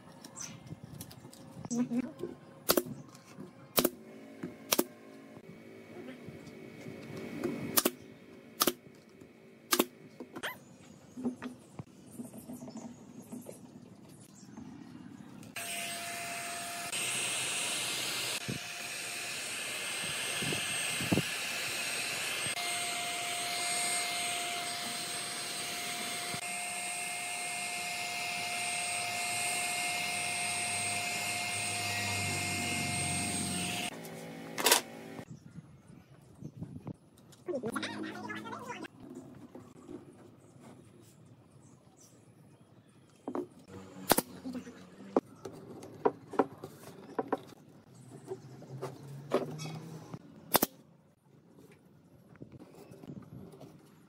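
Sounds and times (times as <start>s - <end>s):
nail gun shots: 2.7s - 2.9s, 3.8s - 4.0s, 7.8s - 8.0s, 8.6s - 8.8s, 9.7s - 9.9s, 44.0s - 44.4s, 50.5s - 50.8s
heat gun blowing with fan whine: 15.6s - 35.2s.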